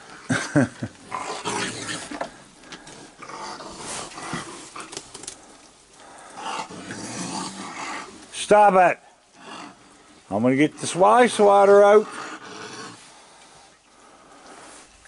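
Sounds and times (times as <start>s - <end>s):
raccoons growling and snarling: 0.0s - 8.4s, 9.3s - 10.2s, 10.8s - 13.2s.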